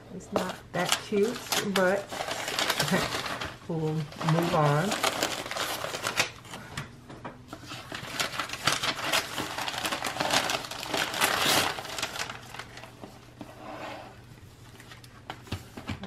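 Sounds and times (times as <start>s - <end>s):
paper wrapping rustling: 0.3s - 6.7s, 7.5s - 13.6s, 14.5s - 16.0s.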